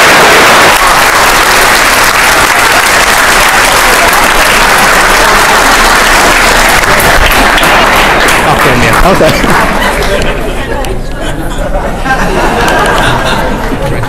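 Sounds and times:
audience applause: 0.0 - 10.7, 12.3 - 14.0.

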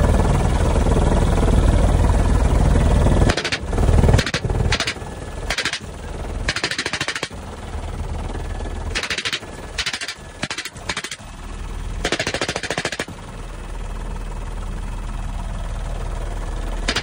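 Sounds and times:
helicopter low drone: 0.0 - 17.0
machine gun firing bursts: 3.2 - 7.4, 8.9 - 11.2, 12.0 - 13.2.

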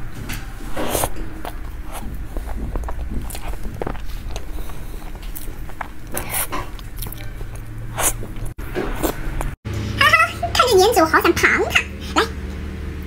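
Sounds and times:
woman chewing: 0.7 - 9.6.

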